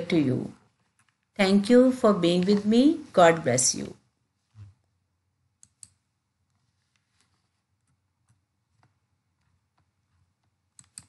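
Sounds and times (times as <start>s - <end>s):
computer clicks: 5.6s - 6.0s, 10.7s - 11.0s.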